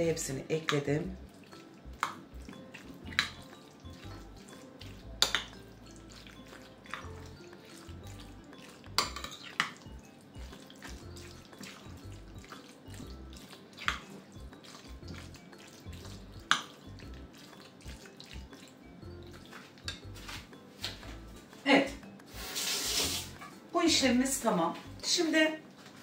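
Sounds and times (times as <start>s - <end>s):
spoon stirring wet pasta: 0.2s - 21.4s
spoon clinking against glass: 2.5s - 9.9s, 13.8s - 20.2s.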